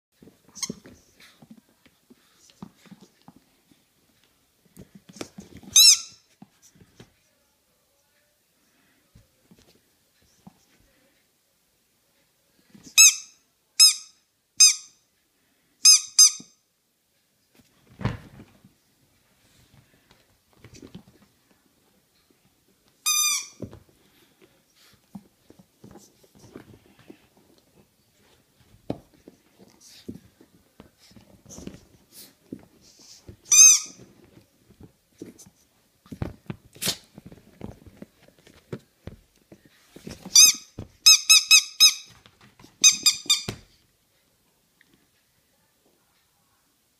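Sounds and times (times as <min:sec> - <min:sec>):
rubber squeaky toy squeaking: 0:00.5 - 0:00.9, 0:05.7 - 0:06.3, 0:12.9 - 0:15.0, 0:15.8 - 0:16.6, 0:23.0 - 0:23.6, 0:33.4 - 0:34.1, 0:40.3 - 0:42.1, 0:42.8 - 0:43.6
rustling: 0:17.5 - 0:41.1.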